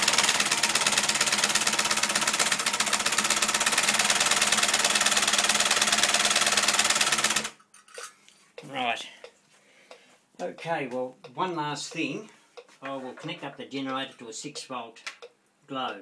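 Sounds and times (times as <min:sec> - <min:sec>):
solenoid engine clattering: 0:00.0 - 0:07.6.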